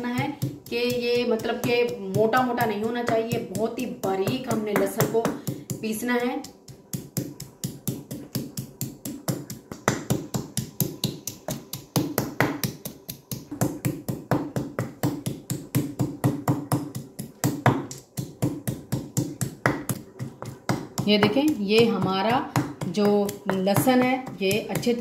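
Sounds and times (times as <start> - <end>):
pestle pounding in stone mortar: 0.0 - 25.0.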